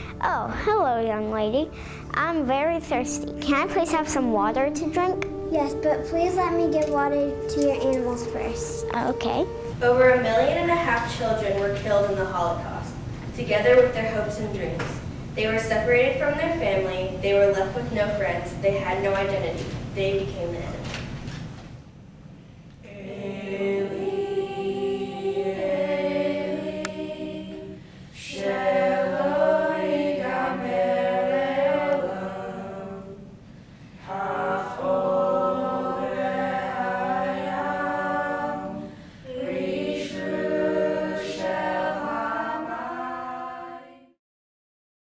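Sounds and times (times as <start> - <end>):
group singing unaccompanied: 22.8 - 33.4, 34.0 - 44.2.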